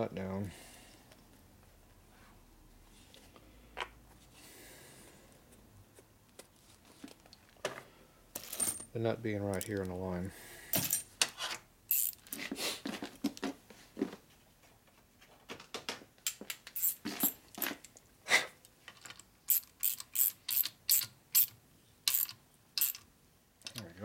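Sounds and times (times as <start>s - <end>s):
wrench clicking on metal fitting: 11.9s - 12.2s, 19.5s - 21.5s, 22.1s - 23.0s.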